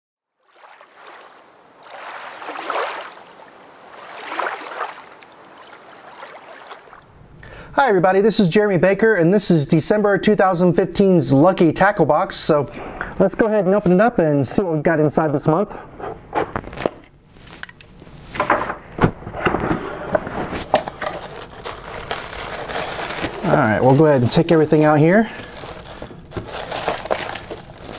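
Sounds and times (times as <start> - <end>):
rushing splashing water: 0.4 - 7.1
tissue paper rustling: 20.6 - 27.9.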